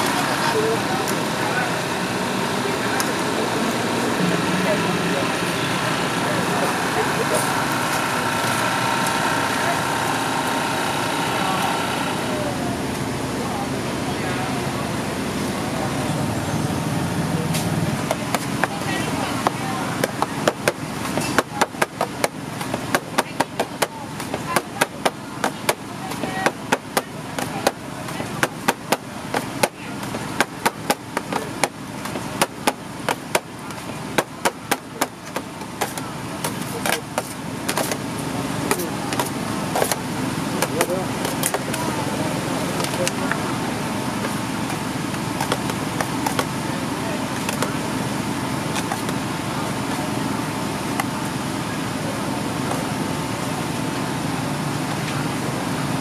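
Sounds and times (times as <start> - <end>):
steady background noise: 0.0 - 56.0
knife chopping on board: 19.4 - 38.0, 38.7 - 40.0.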